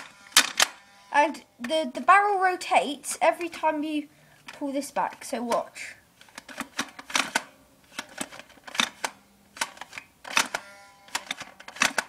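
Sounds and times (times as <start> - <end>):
toy blaster plastic clicks: 0.0 - 0.8, 4.5 - 12.0
brief ringing buzz: 0.0 - 1.5, 10.6 - 11.1.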